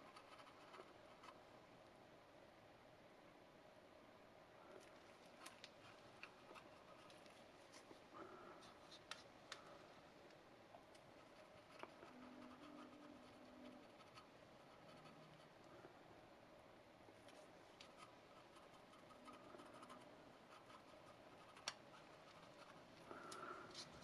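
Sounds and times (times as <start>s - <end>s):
cotton swab scratching on plastic: 11.0s - 15.6s.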